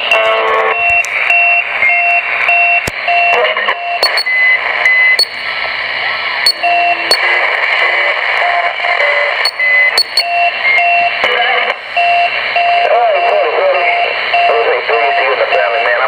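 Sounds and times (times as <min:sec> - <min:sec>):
short radio beeps: 0:02.7 - 0:05.5, 0:06.5 - 0:07.4, 0:08.6 - 0:11.0
radio static hiss: 0:03.3 - 0:10.2
sharp clicks: 0:04.0 - 0:04.3, 0:09.5 - 0:10.3.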